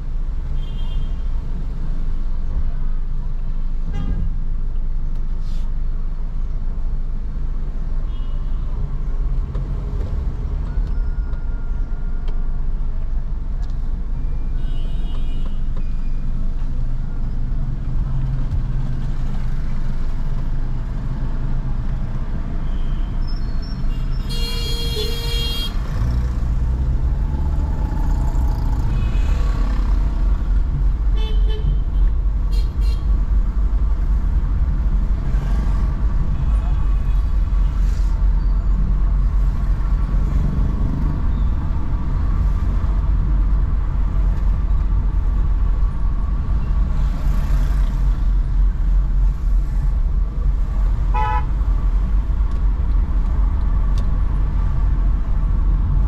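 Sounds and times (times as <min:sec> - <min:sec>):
car driving rumble: 0:15.2 - 0:56.0
car horn toots: 0:51.1 - 0:51.5.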